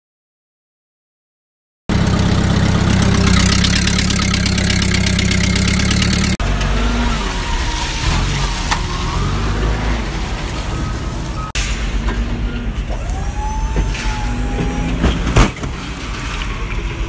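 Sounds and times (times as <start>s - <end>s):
truck engine idling: 1.9s - 6.4s
heavy machinery whining: 1.9s - 11.5s, 12.3s - 15.4s.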